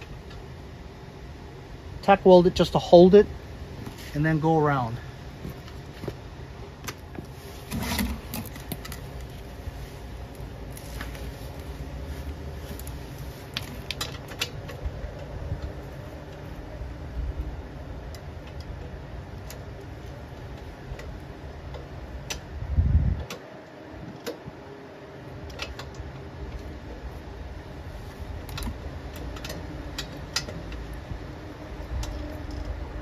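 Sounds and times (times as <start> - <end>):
steady low hum: 0.0 - 33.0
light clicks and taps on metal: 28.4 - 31.1.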